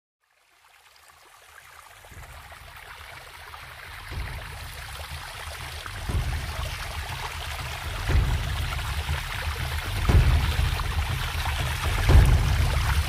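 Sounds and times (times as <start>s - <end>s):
rushing splashing water: 0.4s - 13.0s
deep rumble: 4.1s - 13.0s.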